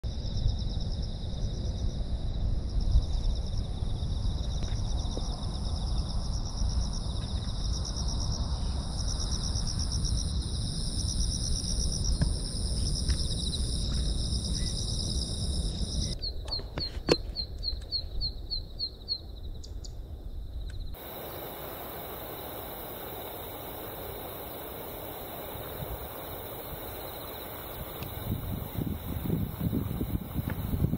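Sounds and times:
wind buffeting microphone: 20.4s - 30.9s
insects trilling in grass: 20.8s - 30.9s.

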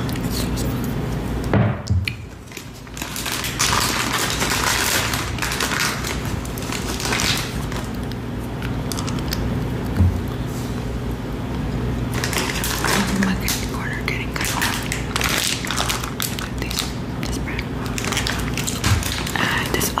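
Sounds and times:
crackling and rustling: 2.4s - 20.0s.

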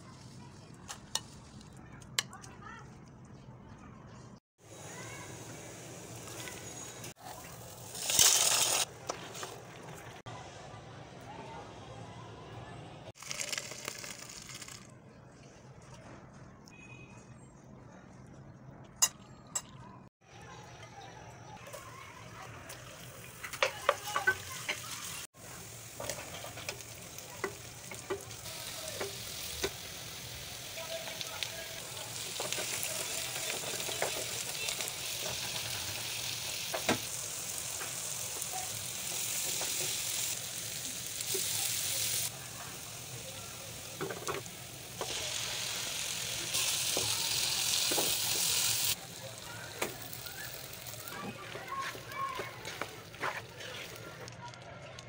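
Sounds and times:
food sizzling in hot oil: 4.6s - 9.4s, 13.2s - 14.8s, 21.7s - 54.2s.

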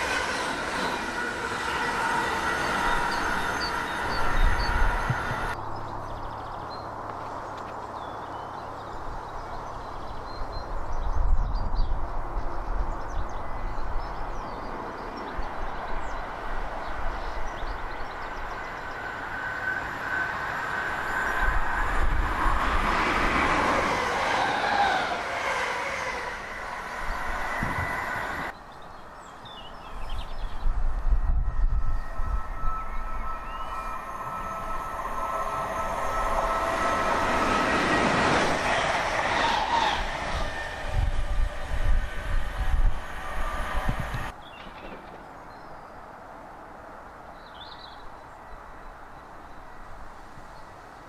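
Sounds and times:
train wheels rumbling on rails: 0.0s - 5.6s, 14.2s - 28.6s, 29.7s - 45.8s
thin high ringing tones: 30.3s - 38.7s.

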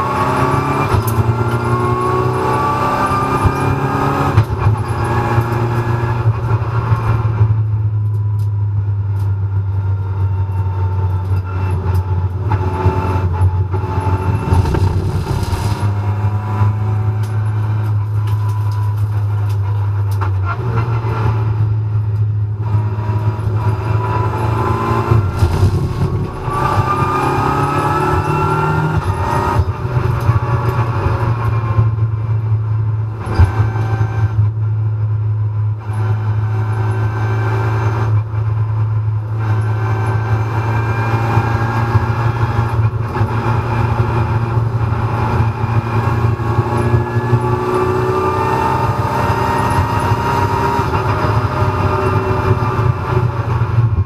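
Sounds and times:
race car engine drone: 0.0s - 54.0s
rising engine whine: 9.2s - 19.1s, 22.9s - 31.7s.

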